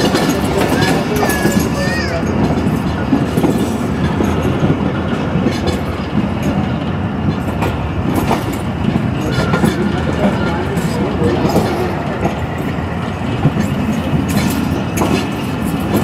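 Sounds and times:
rail joint clacks: 0.0s - 16.0s
train wheels rumbling on rails: 0.0s - 16.0s.

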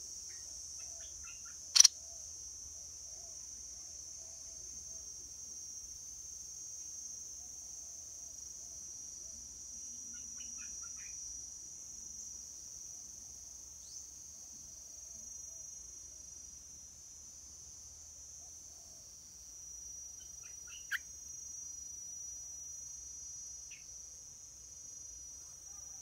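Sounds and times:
insects trilling: 0.0s - 26.0s
bird chirps: 1.0s - 1.9s.

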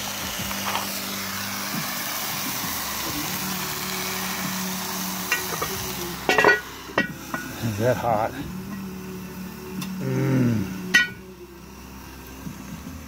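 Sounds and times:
food sizzling in a pot: 0.0s - 13.0s
metal clank on pot lid: 6.3s - 7.5s, 10.9s - 11.2s.

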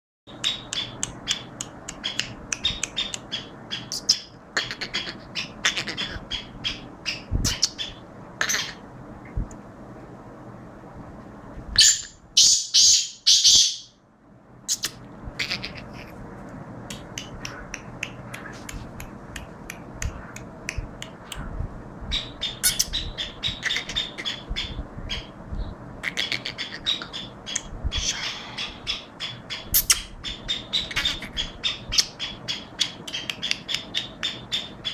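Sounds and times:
bird chirping calls: 0.3s - 8.9s, 11.8s - 14.0s, 14.7s - 16.2s, 22.1s - 34.9s.

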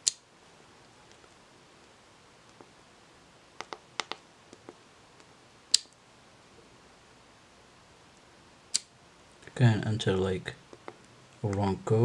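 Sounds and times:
soft taps on keypad: 3.6s - 4.8s.

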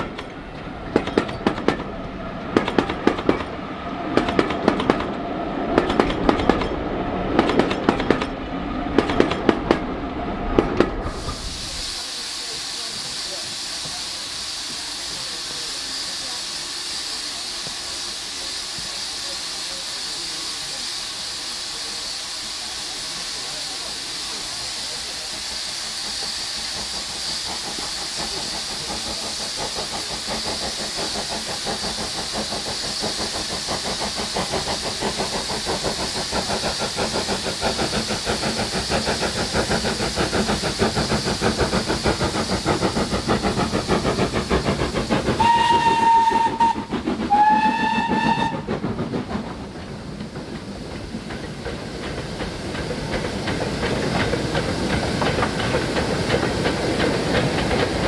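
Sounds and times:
steam locomotive hissing and chuffing: 0.0s - 58.0s
steam whistle blasts: 45.4s - 48.7s.

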